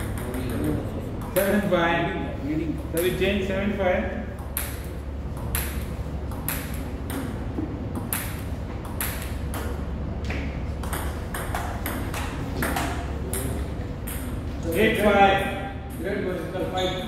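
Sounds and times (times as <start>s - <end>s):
table tennis ball ticking: 4.4s - 9.8s, 10.8s - 16.0s.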